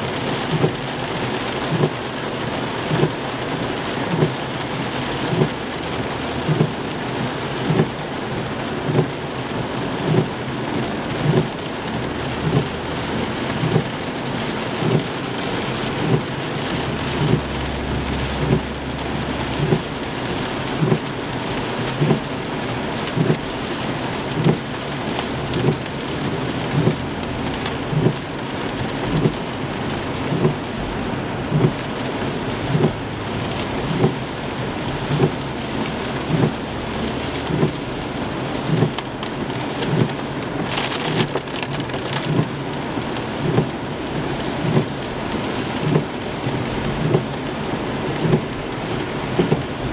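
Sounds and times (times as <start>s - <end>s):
heavy rain on car roof: 0.0s - 49.9s
windshield wipers thumping: 0.1s - 5.8s, 6.4s - 45.0s, 45.8s - 49.9s
low rumble: 16.6s - 20.9s.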